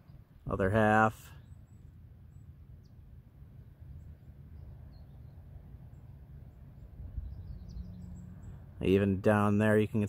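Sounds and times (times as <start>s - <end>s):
faint bird chirps: 1.3s - 8.7s
wind buffeting microphone: 6.4s - 8.1s.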